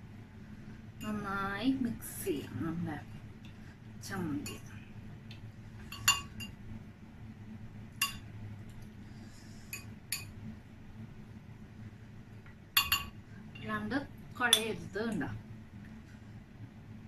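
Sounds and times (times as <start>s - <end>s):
hand clinking glass bowl: 5.8s - 6.6s, 12.8s - 13.7s.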